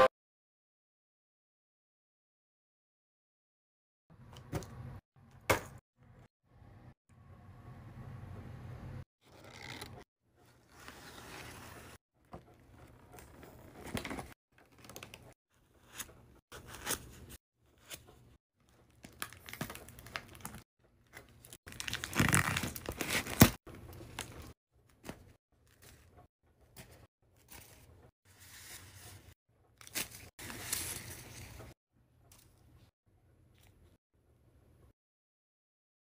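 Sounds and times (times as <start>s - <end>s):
plastic packaging crinkling: 21.2s - 24.5s.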